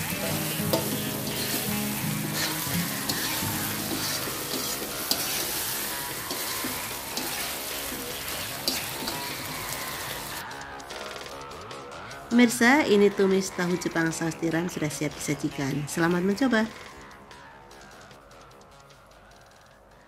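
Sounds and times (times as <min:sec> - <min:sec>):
food sizzling in a wok: 0:00.0 - 0:10.4.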